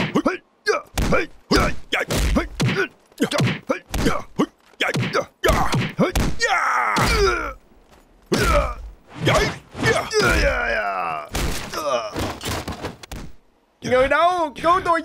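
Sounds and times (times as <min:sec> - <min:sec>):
person crying out in pain: 0:06.4 - 0:07.6.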